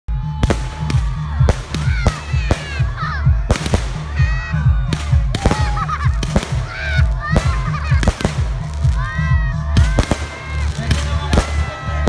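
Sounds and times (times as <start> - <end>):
fireworks bangs: 0.4 - 12.0.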